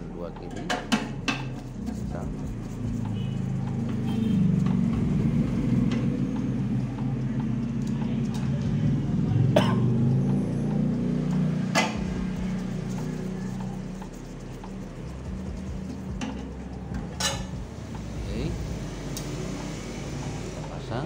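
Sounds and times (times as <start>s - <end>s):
low rumble: 4.6s - 11.1s.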